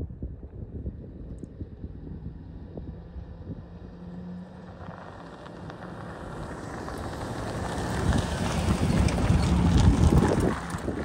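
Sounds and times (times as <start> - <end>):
pickup truck driving past: 2.3 - 11.0.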